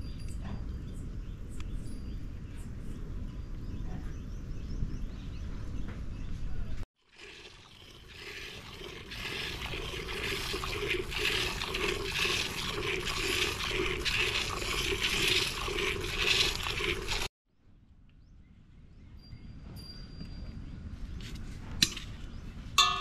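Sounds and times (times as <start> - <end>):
milk squirting into steel pot: 7.0 - 17.3.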